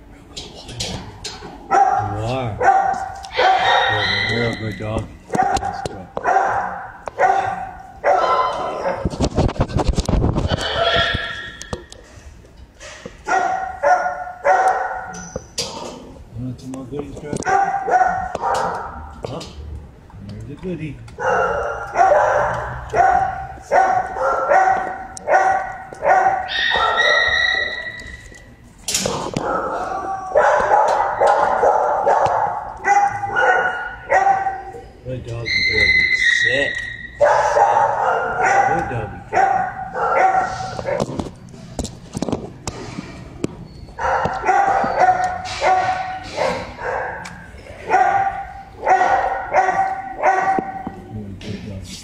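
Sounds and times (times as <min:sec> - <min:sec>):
dogs barking: 0:01.4 - 0:09.3, 0:10.4 - 0:11.9, 0:13.2 - 0:15.4, 0:17.3 - 0:19.3, 0:21.1 - 0:28.4, 0:29.0 - 0:41.4, 0:43.9 - 0:51.1.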